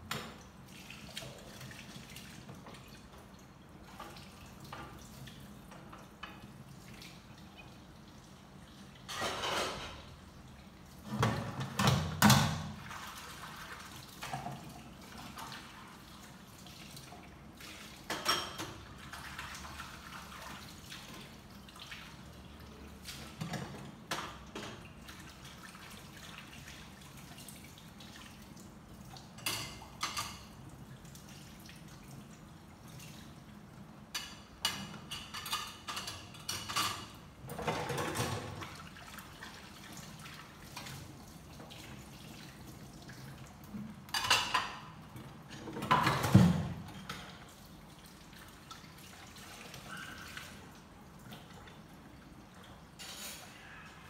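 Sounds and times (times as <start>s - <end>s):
water splashing and dripping: 0.0s - 9.4s, 10.4s - 53.3s
dishes knocking and clinking: 9.1s - 10.1s, 18.1s - 18.8s, 44.1s - 45.0s.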